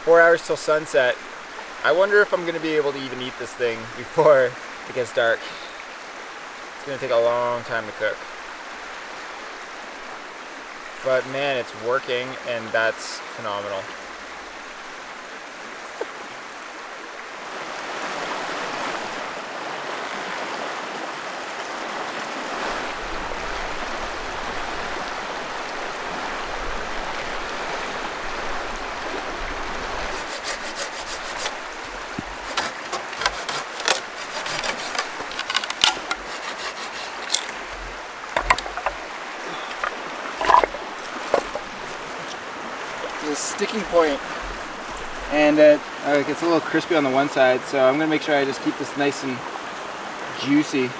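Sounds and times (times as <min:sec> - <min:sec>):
river water running and splashing: 0:00.0 - 0:50.9
wooden knocks of firewood handled: 0:31.3 - 0:43.2.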